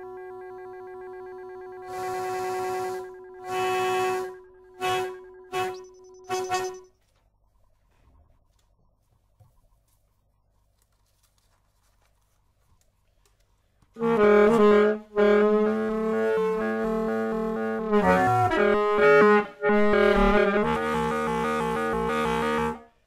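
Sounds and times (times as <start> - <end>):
saxophone long held notes: 0.0 - 6.8, 14.0 - 23.0.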